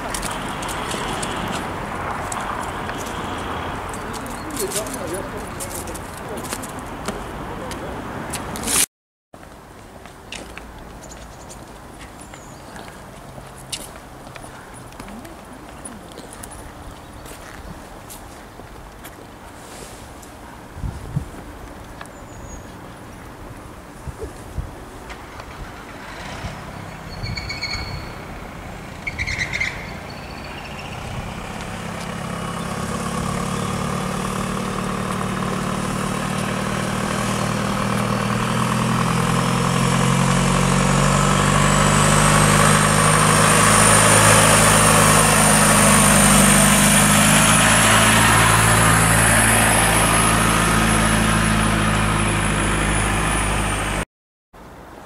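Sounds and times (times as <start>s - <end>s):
short high chirps: 27.1s - 28.2s
engine running with rising whine: 30.0s - 54.0s.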